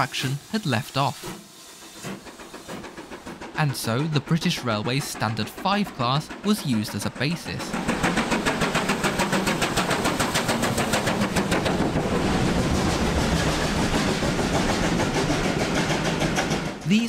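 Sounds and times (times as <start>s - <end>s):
steam locomotive chuffing: 0.0s - 17.0s
train coaches rolling: 0.0s - 17.0s.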